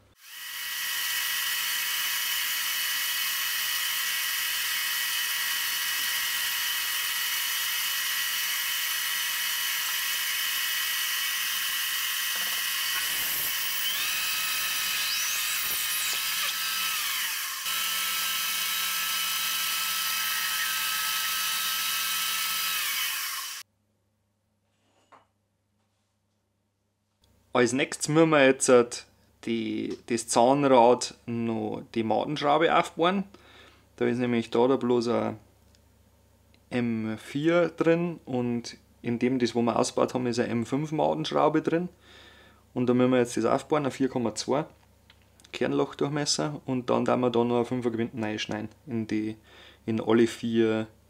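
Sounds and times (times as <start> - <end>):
electric machine tool whining: 0.2 - 23.6.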